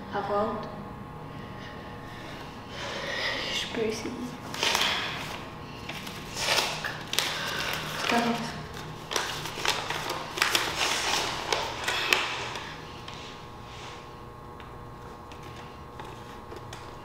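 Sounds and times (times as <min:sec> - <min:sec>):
paper rustling and crackling: 0:04.4 - 0:13.4, 0:15.0 - 0:17.0.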